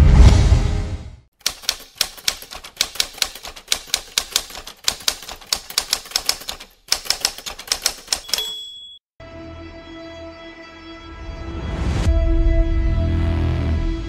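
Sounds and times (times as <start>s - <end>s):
typewriter keys clacking: 1.4s - 8.9s.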